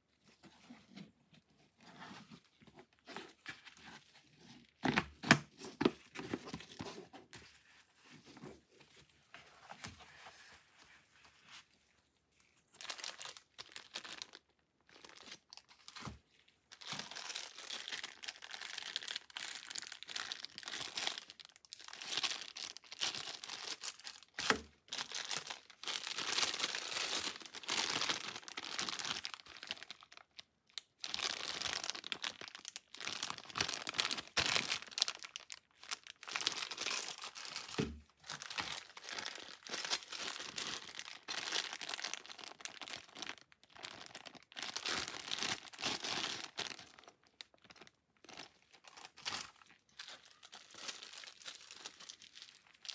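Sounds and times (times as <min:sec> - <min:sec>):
plastic bags crinkling: 0:12.7 - 0:52.9.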